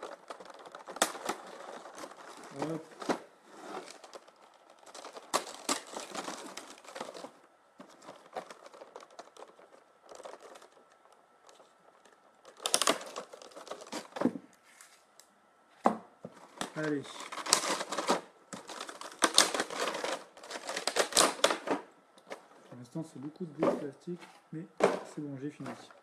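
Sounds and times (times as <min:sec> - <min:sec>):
plastic packaging crinkling: 0:00.0 - 0:15.2, 0:16.3 - 0:22.6.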